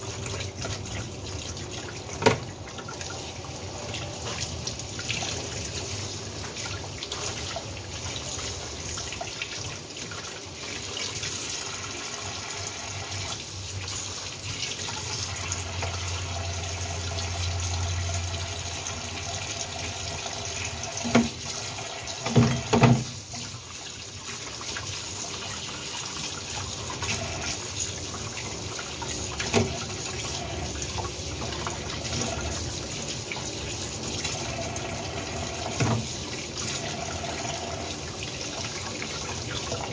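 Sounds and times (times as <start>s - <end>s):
tap running into metal sink: 2.1s - 2.6s, 20.9s - 23.4s, 29.4s - 30.0s, 35.5s - 36.2s.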